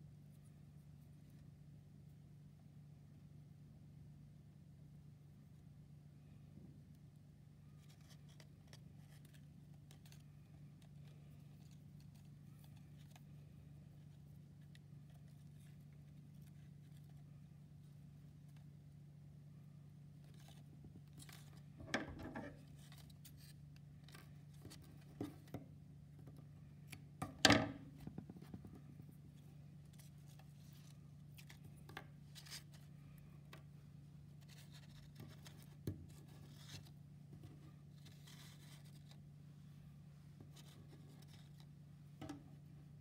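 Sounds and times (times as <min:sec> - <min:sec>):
paper rustling: 0:07.6 - 0:18.7, 0:20.2 - 0:25.6, 0:28.0 - 0:39.3.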